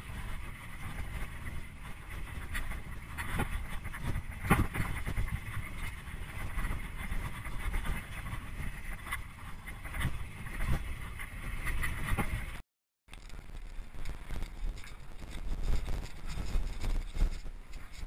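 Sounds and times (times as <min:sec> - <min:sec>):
wind on microphone: 0:00.0 - 0:12.6, 0:13.2 - 0:18.0
bike knocks and rattles: 0:03.2 - 0:05.6.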